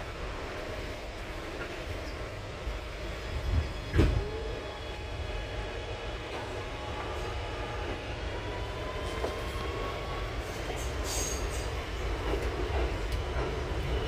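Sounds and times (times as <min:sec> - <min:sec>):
wheels rumbling on rail: 0:00.0 - 0:14.0.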